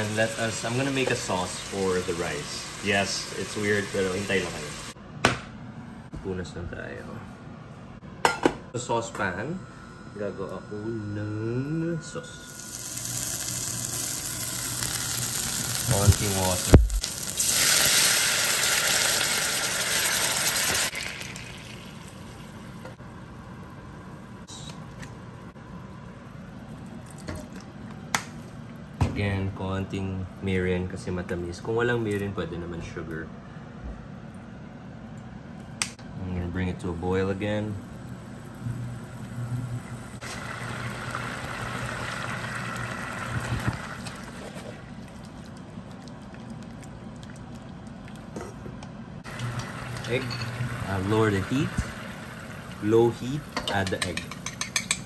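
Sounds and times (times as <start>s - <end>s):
low steady hum: 0.0s - 19.2s, 20.8s - 55.0s
water hissing in hot pan: 12.6s - 22.3s
sauce bubbling in saucepan: 40.2s - 48.3s.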